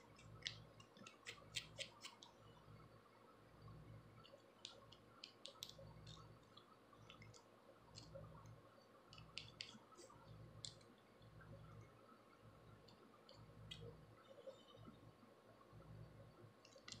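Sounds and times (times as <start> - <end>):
comb scratching across scalp: 1.0 - 2.3.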